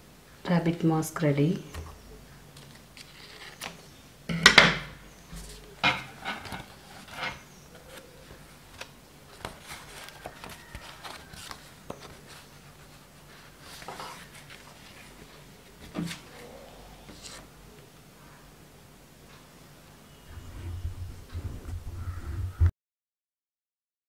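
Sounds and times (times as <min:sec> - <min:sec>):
stiff card rustling: 0:05.4 - 0:17.5.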